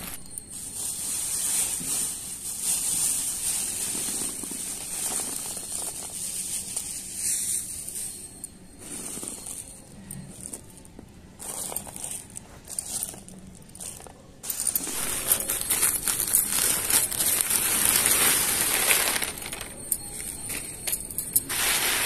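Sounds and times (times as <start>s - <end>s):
lentils pouring onto cloth: 0.0s - 7.6s, 14.5s - 19.8s, 21.5s - 22.0s
plastic bag crinkling: 0.0s - 8.3s, 11.4s - 22.0s.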